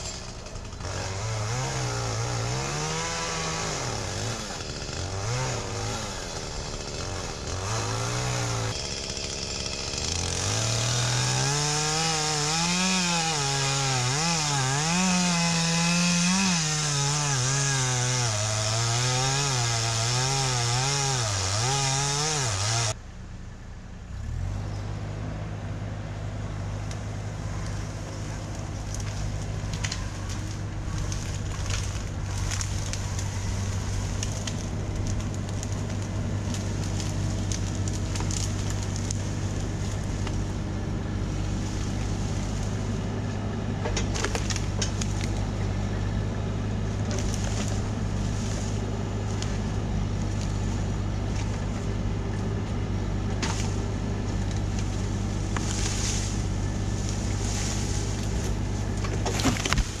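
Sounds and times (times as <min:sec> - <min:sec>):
excavator diesel engine running: 0:03.2 - 0:11.8, 0:22.9 - 1:00.0
sharp cracks: 0:28.6 - 0:40.4.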